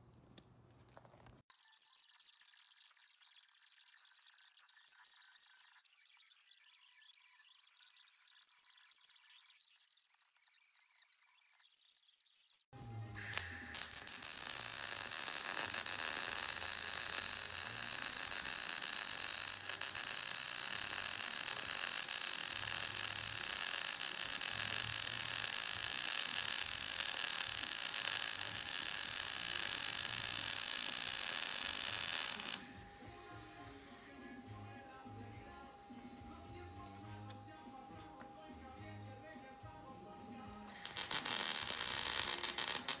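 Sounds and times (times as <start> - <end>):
arc welding crackle: 13.1 - 34.1, 40.7 - 43.0.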